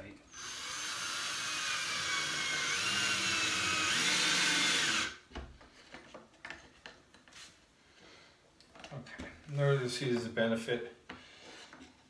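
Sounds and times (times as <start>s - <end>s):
cordless drill driving a screw: 0.3s - 5.2s.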